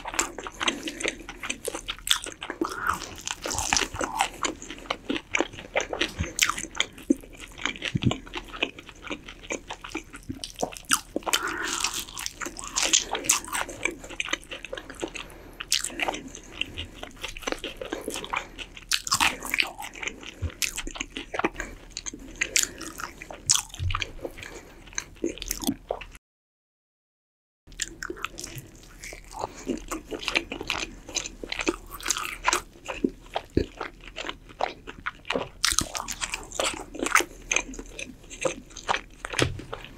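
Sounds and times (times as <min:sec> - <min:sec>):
wet mouth sounds: 0:00.0 - 0:08.7, 0:09.3 - 0:26.1
chewing and crunching: 0:00.0 - 0:26.2, 0:27.7 - 0:39.9.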